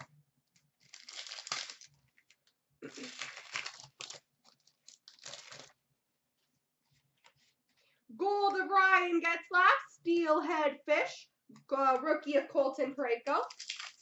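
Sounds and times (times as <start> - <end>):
wrapper crinkling and tearing: 0.5 - 5.8, 13.4 - 14.0.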